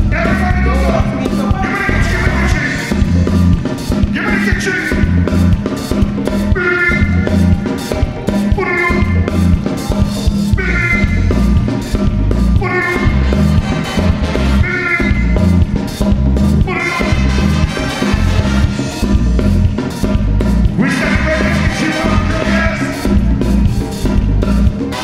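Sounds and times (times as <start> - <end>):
calypso band playing: 0.0 - 25.0
drum and bass beat: 0.0 - 25.0
trombone and saxophones: 0.0 - 25.0
people singing: 16.7 - 23.2.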